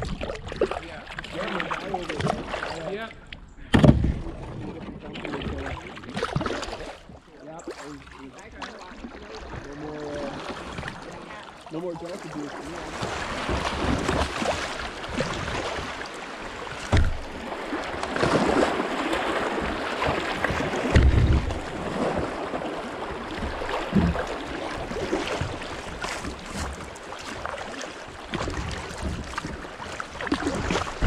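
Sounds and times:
water rushing and splashing: 0:00.0 - 0:03.2, 0:03.9 - 0:31.0
low thumps on kayak hull: 0:03.7 - 0:04.6, 0:12.9 - 0:31.0.

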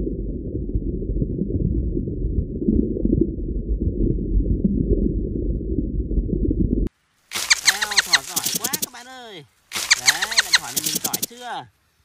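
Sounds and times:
muffled underwater rumble: 0:00.0 - 0:06.9
soft underwater pops and crackles: 0:07.3 - 0:09.0.

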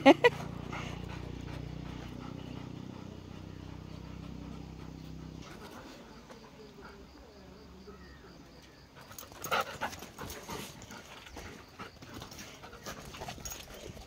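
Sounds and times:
dogs panting: 0:00.0 - 0:07.9, 0:08.7 - 0:14.0
dogs scuffling: 0:09.1 - 0:14.0.

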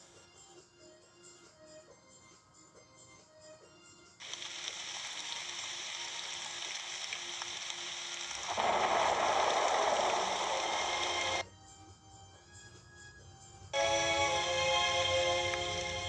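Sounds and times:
rain falling: 0:04.2 - 0:11.4, 0:13.8 - 0:16.0
thunder rumble: 0:08.4 - 0:11.4.

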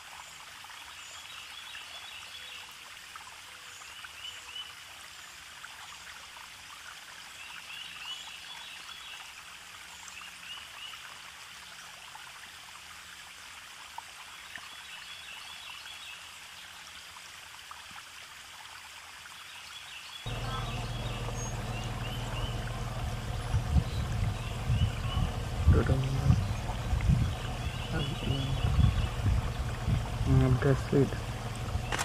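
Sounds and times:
small water splashes: 0:00.0 - 0:32.0
river water rushing: 0:20.2 - 0:32.0.

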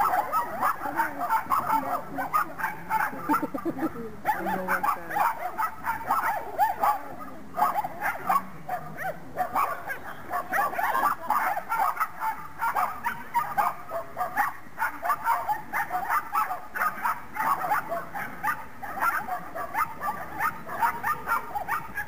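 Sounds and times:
dog yapping: 0:09.0 - 0:22.0.

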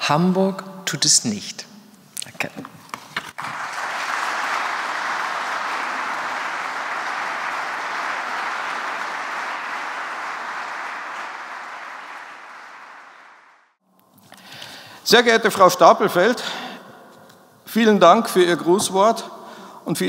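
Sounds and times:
audience applauding: 0:03.3 - 0:13.8.

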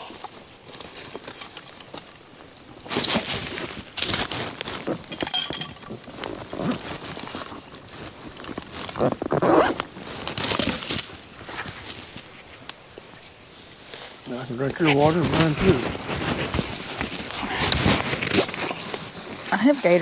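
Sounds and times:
rustling: 0:00.0 - 0:20.0
backpack zipper being pulled: 0:06.2 - 0:07.6, 0:08.4 - 0:10.8, 0:17.4 - 0:18.9.

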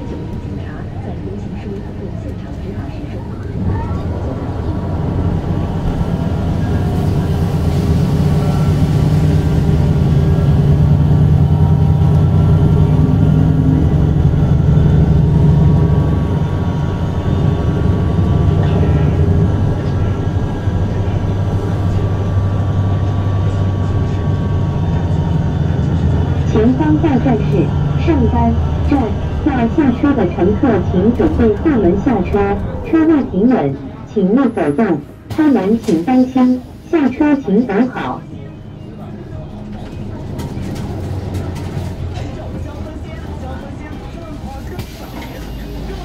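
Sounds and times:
bus drivetrain drone: 0:00.0 - 0:46.0.

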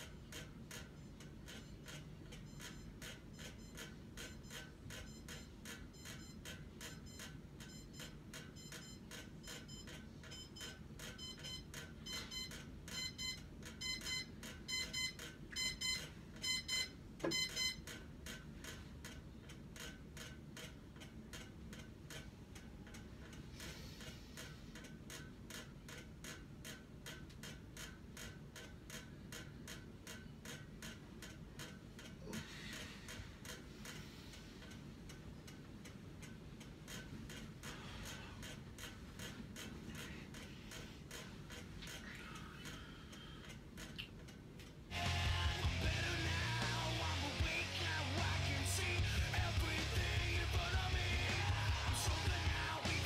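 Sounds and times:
steady ticking: 0:00.0 - 0:53.0
electronic alarm beeping: 0:01.5 - 0:17.9.

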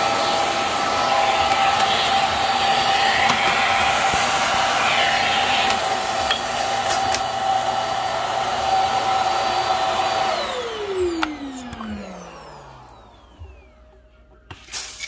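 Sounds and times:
vacuum cleaner running: 0:00.0 - 0:14.8.

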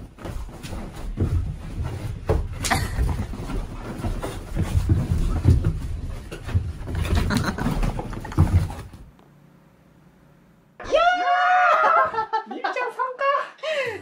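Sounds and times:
person and puppy running thumps: 0:00.0 - 0:09.1.

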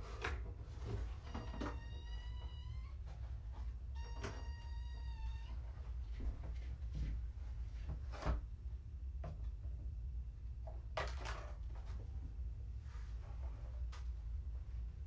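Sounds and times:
kitten meowing: 0:04.0 - 0:05.6.

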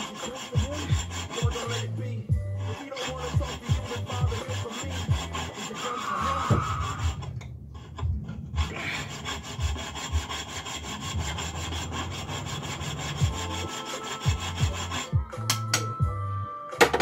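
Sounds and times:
hand saw cutting metal: 0:00.0 - 0:16.0.

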